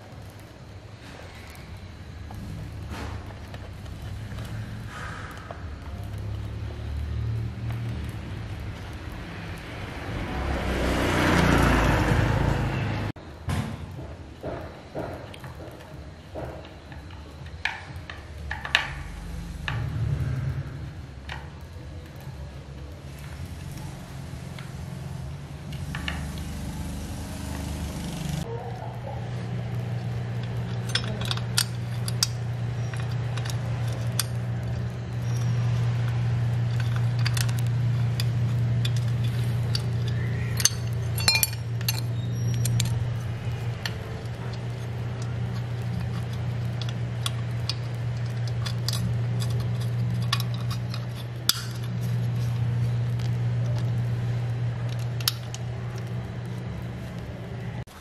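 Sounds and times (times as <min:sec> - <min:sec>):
steady low hum: 0:00.0 - 0:58.0
tools and metal parts clinking: 0:14.4 - 0:20.3, 0:29.4 - 0:58.0.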